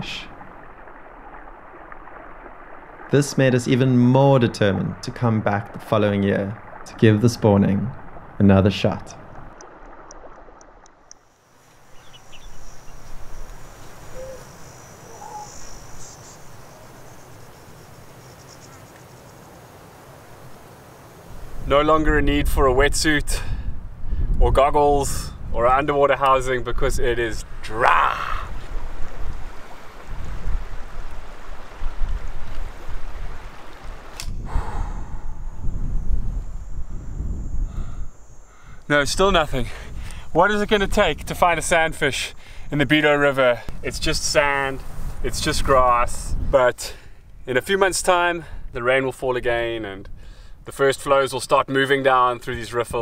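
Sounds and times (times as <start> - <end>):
river water running: 0.0 - 22.1, 25.9 - 35.6
insect rapid chirps: 11.1 - 21.7, 34.2 - 43.0
insects trilling: 11.1 - 22.0, 34.3 - 43.7
wind buffeting microphone: 21.3 - 43.0, 43.6 - 47.5
sharp click: 34.1 - 34.4.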